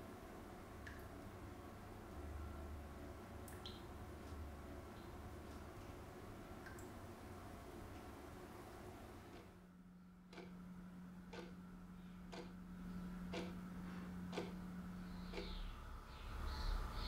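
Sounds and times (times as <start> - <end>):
steady low hum: 0.0 - 17.0
clock ticking faintly: 13.3 - 13.6.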